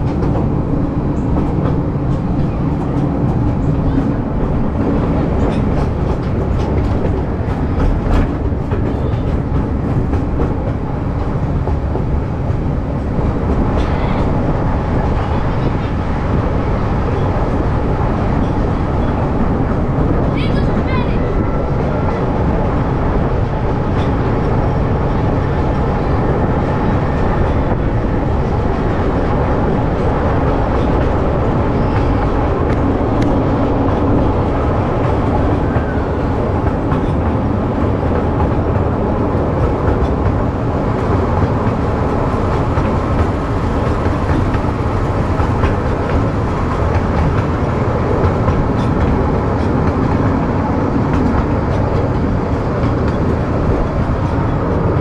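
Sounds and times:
train cars rumbling and rattling on rails: 0:00.0 - 0:55.0.

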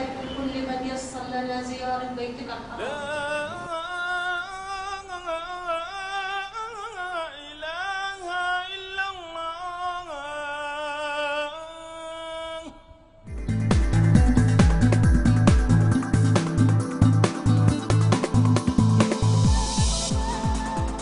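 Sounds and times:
person singing unaccompanied: 0:02.7 - 0:13.2, 0:17.7 - 0:21.0.

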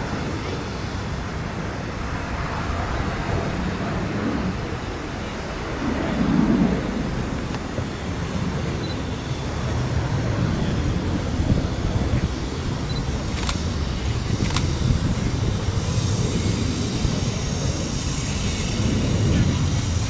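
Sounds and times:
wind rumble on microphone: 0:00.0 - 0:20.0
miniature steam locomotive: 0:07.3 - 0:20.0.

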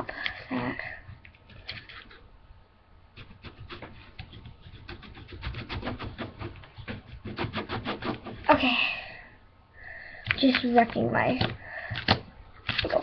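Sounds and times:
knife scraping hardened glue: 0:03.2 - 0:08.6.

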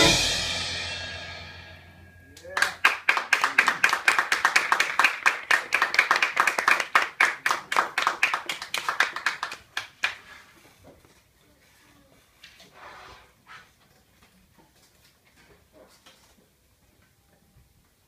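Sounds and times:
small group clapping: 0:02.4 - 0:10.6.

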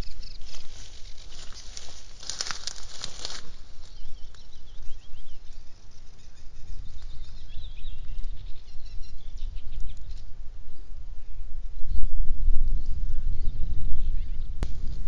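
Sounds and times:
small birds chirping: 0:00.0 - 0:10.4
wind rumble on microphone: 0:00.0 - 0:15.0.

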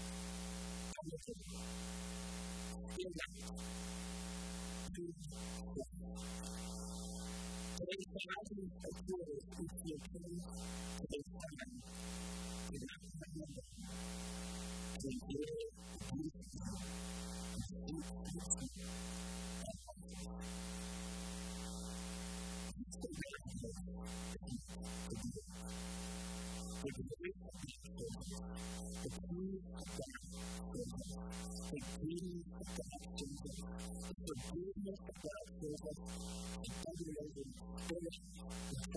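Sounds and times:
electrical mains hum: 0:00.0 - 0:07.9, 0:11.7 - 0:12.8, 0:13.7 - 0:22.8.

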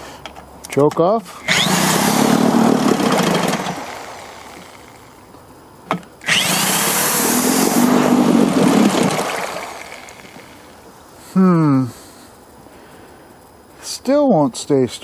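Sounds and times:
outboard motor starting: 0:01.4 - 0:05.2, 0:06.2 - 0:10.8.

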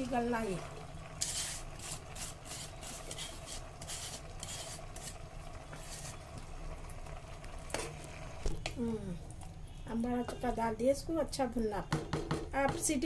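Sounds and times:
wet leaves scraping against metal: 0:01.2 - 0:06.4.

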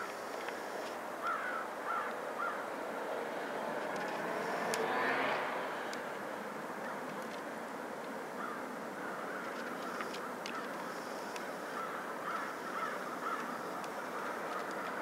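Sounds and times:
crows cawing: 0:01.2 - 0:02.7, 0:08.4 - 0:15.0.

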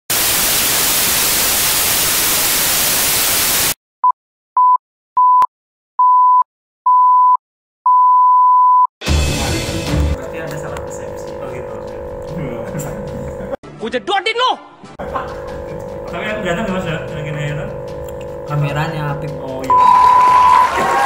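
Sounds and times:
television static hissing: 0:00.1 - 0:03.8
countdown beeps: 0:15.3 - 0:20.7.

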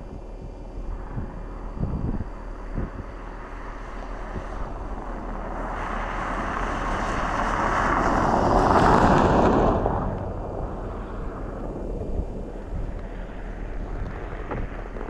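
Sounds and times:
wind thumps on microphone: 0:00.0 - 0:15.0
pickup truck driving on ice: 0:03.4 - 0:15.0.

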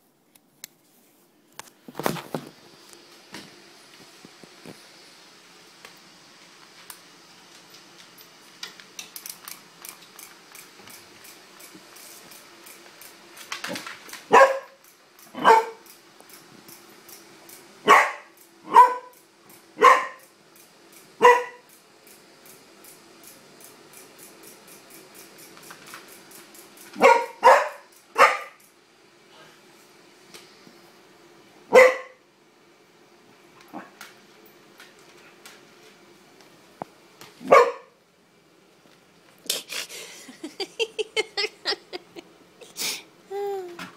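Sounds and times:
dog barking: 0:14.3 - 0:14.8, 0:15.4 - 0:15.8, 0:17.9 - 0:19.1, 0:19.8 - 0:20.2, 0:21.2 - 0:21.6, 0:27.0 - 0:28.6, 0:31.7 - 0:32.2, 0:37.4 - 0:37.9.

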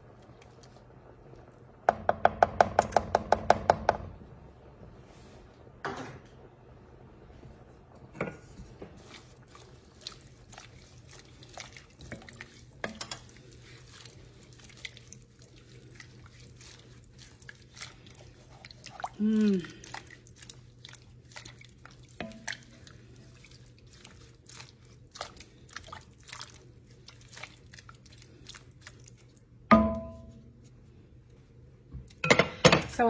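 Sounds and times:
spoon knocking against pot: 0:01.9 - 0:04.1, 0:29.7 - 0:30.4
spoon stirring soup: 0:08.2 - 0:30.9
liquid sloshing: 0:08.9 - 0:30.8.

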